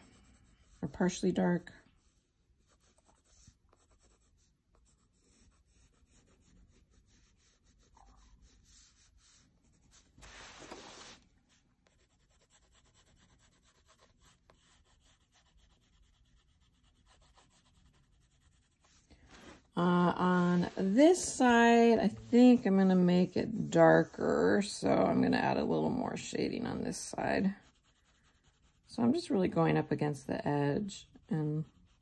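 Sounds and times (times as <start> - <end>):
pencil scratching on paper: 0.0 - 32.0
sketchbook sliding on table: 10.2 - 11.2.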